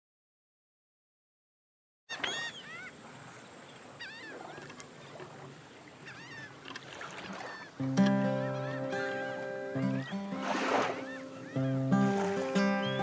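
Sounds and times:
birds chirping: 0:02.1 - 0:13.0
acoustic guitar fingerpicking: 0:07.8 - 0:13.0.

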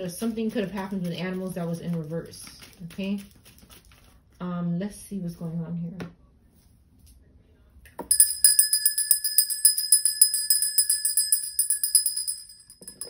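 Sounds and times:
hand bell ringing rapidly: 0:08.1 - 0:13.0.

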